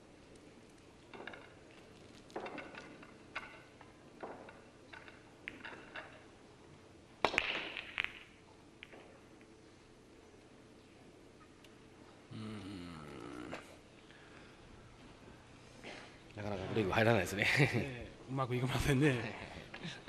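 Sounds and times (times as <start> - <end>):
pool balls clattering: 1.0 - 6.6, 7.2 - 9.5.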